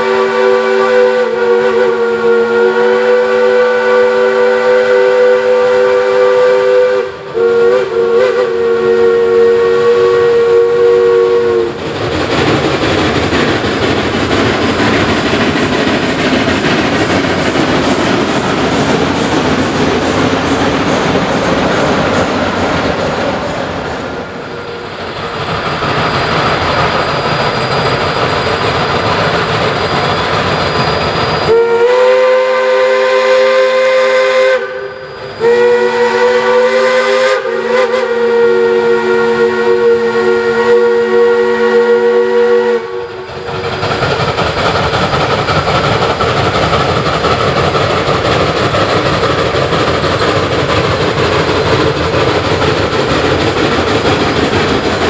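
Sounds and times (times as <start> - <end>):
steam whistle blasts: 0.0 - 11.8, 30.8 - 43.6
steam locomotive running past: 0.0 - 55.0.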